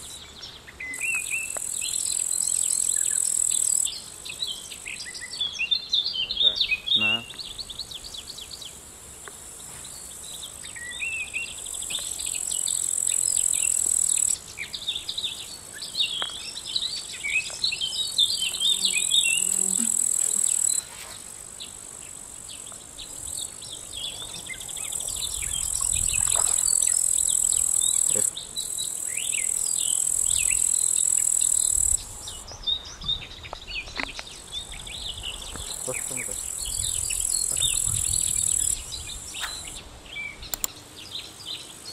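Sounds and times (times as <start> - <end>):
high-pitched insect chirring: 1.0 - 4.0, 11.6 - 14.5, 17.4 - 23.6, 24.5 - 32.4, 35.7 - 39.8.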